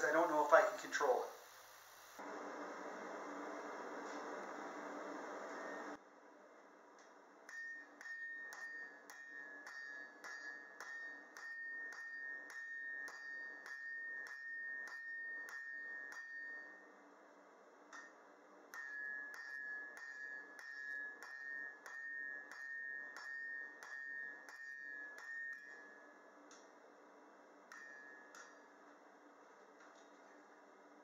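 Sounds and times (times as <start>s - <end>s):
hammer striking hot steel on anvil: 7.4s - 16.9s, 17.9s - 26.7s, 27.7s - 28.8s.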